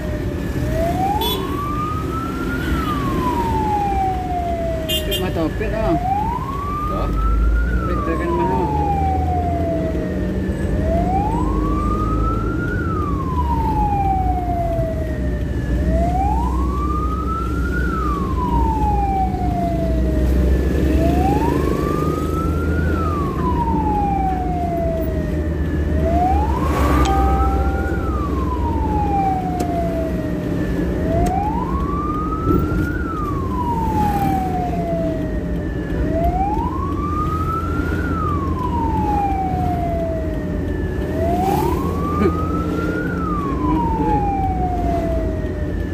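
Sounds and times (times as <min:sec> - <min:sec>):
ambulance wail siren: 0:00.0 - 0:45.9
vehicle engine and tyres rumble: 0:00.0 - 0:45.9.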